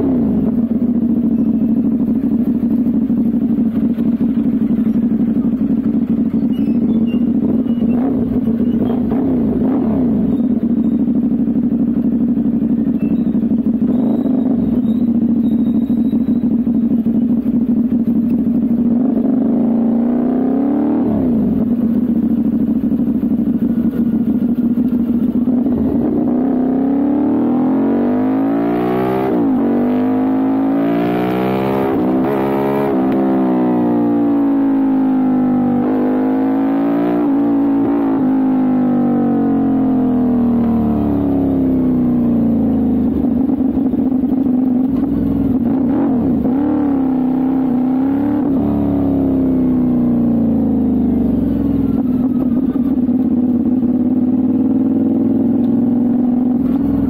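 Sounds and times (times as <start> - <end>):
motorcycle exhaust revving: 0.0 - 57.0.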